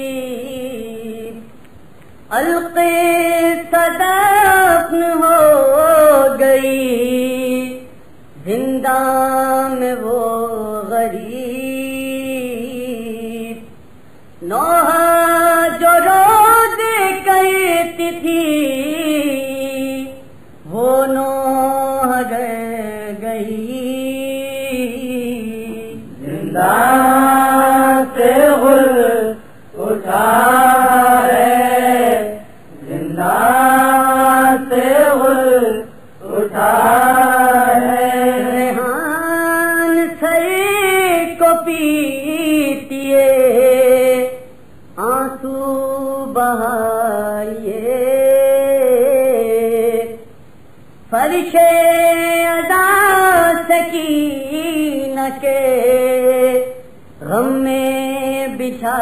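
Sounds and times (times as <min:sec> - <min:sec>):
man chanting a lament: 0:14.4 - 0:50.2.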